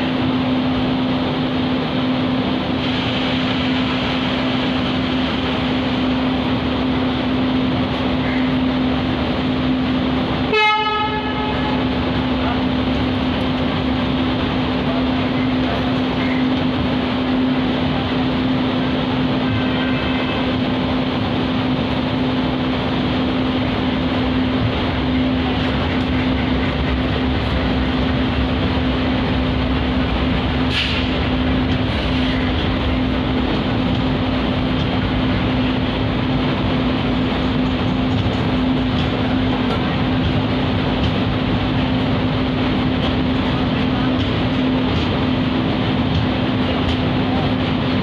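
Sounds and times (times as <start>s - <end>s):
train wheels rumbling on rails: 0.0s - 48.0s
low hum: 21.2s - 47.4s.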